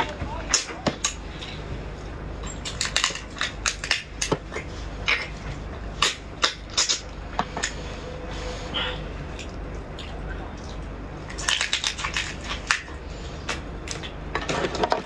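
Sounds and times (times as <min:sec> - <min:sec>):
crab shell cracking and crunching: 0:02.4 - 0:07.8, 0:09.3 - 0:15.0.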